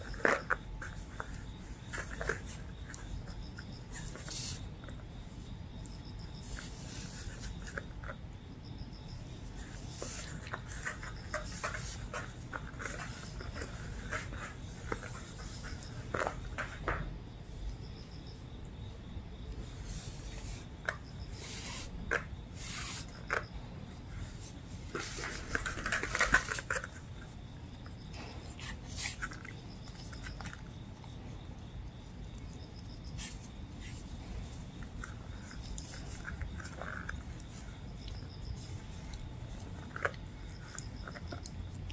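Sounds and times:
strings rustling on floor mat: 0:00.0 - 0:08.2, 0:09.2 - 0:17.6, 0:19.5 - 0:41.5
rope strings rustling and clicking: 0:24.4 - 0:27.3.

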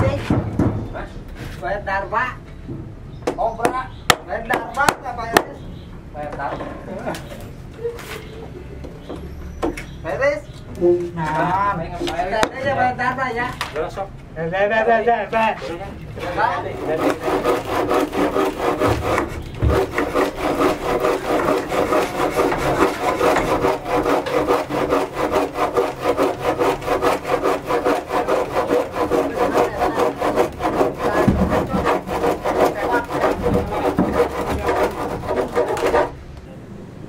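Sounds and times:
hand saw cutting wood: 0:16.7 - 0:36.2.

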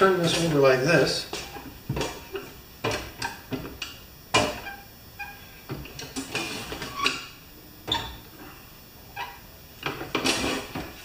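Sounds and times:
metal knocks and clunks: 0:01.3 - 0:04.8.

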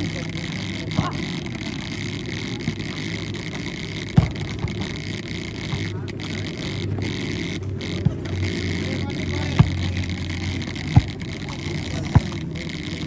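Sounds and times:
murmur of spectators: 0:00.0 - 0:13.0
volleyball being struck: 0:01.0 - 0:01.3, 0:04.2 - 0:05.0, 0:08.0 - 0:08.3, 0:12.0 - 0:12.4.

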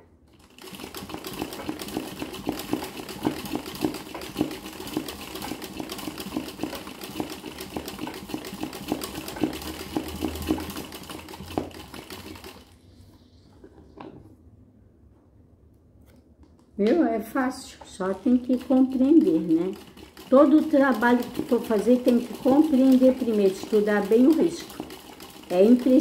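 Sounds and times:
sewing machine stitching: 0:00.3 - 0:12.8, 0:18.0 - 0:26.0.

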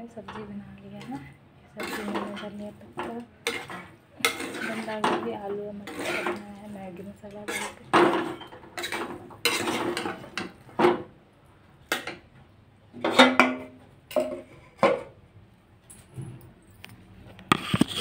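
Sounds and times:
metal spatula scraping a pan: 0:01.8 - 0:06.7, 0:07.4 - 0:10.5, 0:17.5 - 0:18.0.

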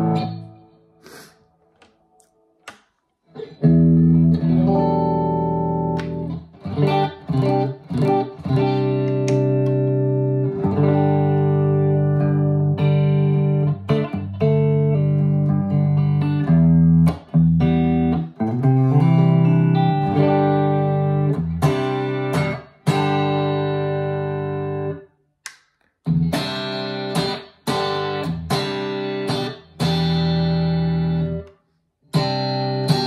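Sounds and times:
electric guitar chords ringing: 0:00.0 - 0:00.8, 0:03.4 - 0:25.0, 0:26.1 - 0:31.5, 0:32.1 - 0:33.0.

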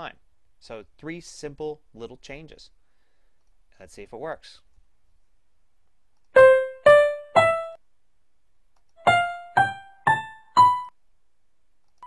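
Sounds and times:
keyboard notes rising scale: 0:06.4 - 0:07.8, 0:09.0 - 0:10.9.

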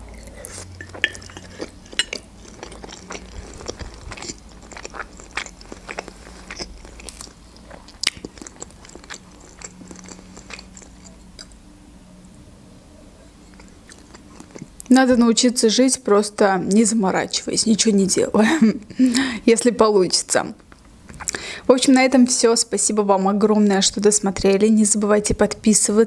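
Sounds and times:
wet chewing mouth clicks: 0:00.1 - 0:11.6, 0:13.5 - 0:14.9.

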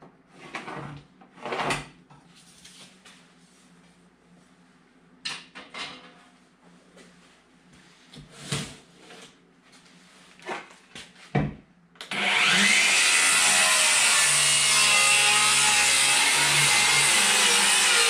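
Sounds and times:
electric power saw cutting wood: 0:12.0 - 0:18.0.

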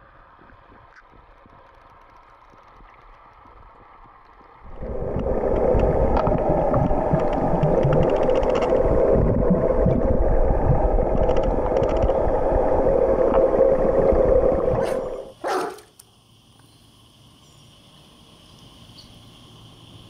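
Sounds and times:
muffled underwater water churning: 0:00.0 - 0:15.4
water splash: 0:04.7 - 0:15.4.

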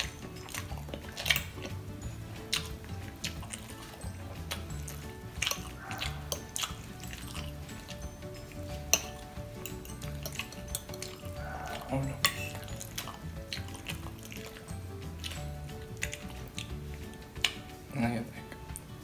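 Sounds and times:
background music: 0:00.0 - 0:19.0
fork clinking on glass dish: 0:08.8 - 0:13.1.

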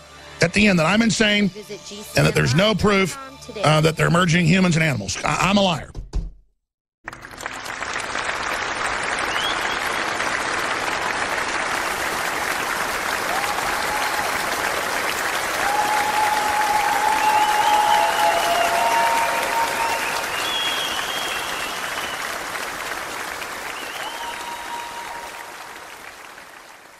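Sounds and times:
crowd applauding: 0:07.0 - 0:26.9.

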